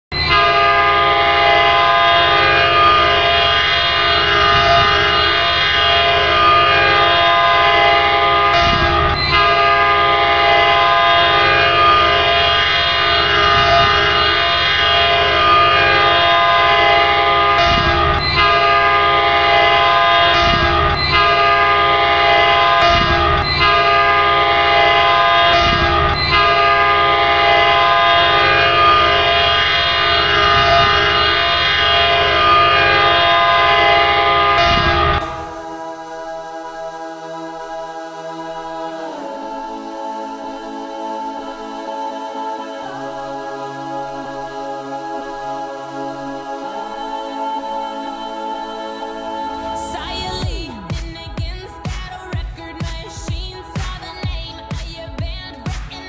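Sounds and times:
air horn chord: 0.1s - 55.2s.

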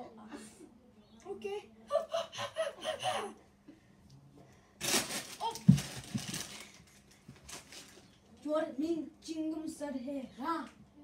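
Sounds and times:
rustling and scuffling: 4.8s - 8.1s.

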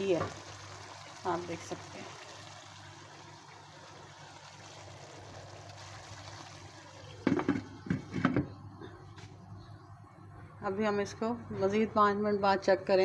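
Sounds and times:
food simmering in a wok: 0.0s - 8.8s.

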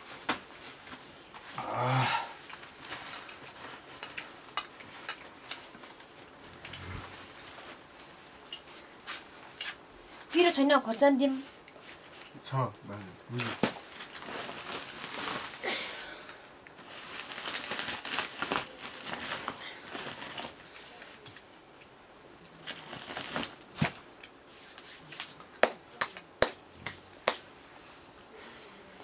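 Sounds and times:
hands rustling rice on plates: 22.6s - 28.5s.

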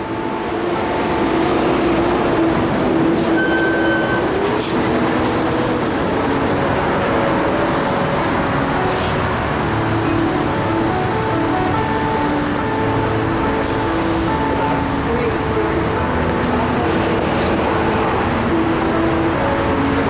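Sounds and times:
rushing road and traffic noise: 0.0s - 20.0s.

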